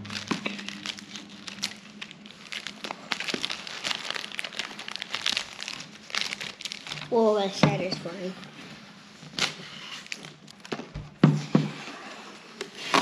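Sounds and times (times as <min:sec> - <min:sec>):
plastic wrap crinkling: 0:00.0 - 0:11.1.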